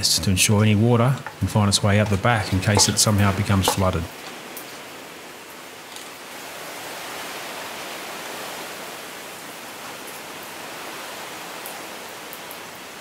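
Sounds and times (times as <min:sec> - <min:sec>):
water spattering on concrete: 0:01.1 - 0:04.9.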